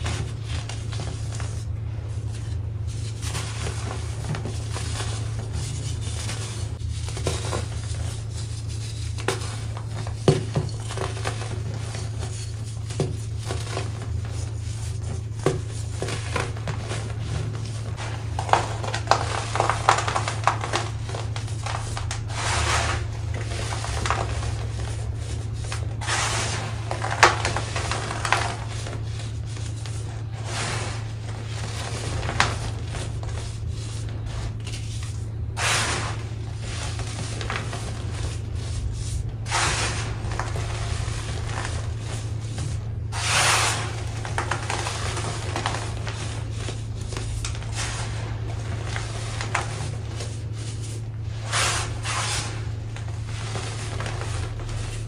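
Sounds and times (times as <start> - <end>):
steady low hum: 0.0 - 55.0
baking soda chunks crunching: 15.2 - 55.0.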